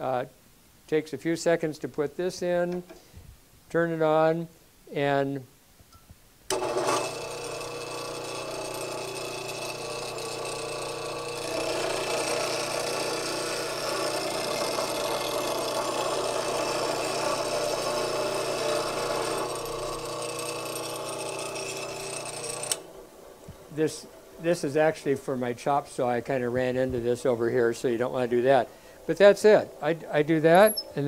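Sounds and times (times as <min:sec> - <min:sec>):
tool grinding on wheel: 0:06.5 - 0:23.0, 0:29.6 - 0:31.0
bench grinder running: 0:06.5 - 0:24.2.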